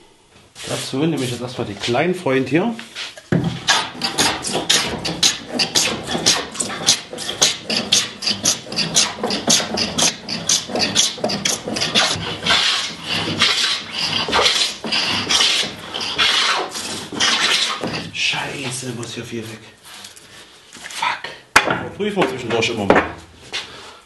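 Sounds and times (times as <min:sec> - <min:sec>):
hand plane cutting wood: 0:03.4 - 0:18.1.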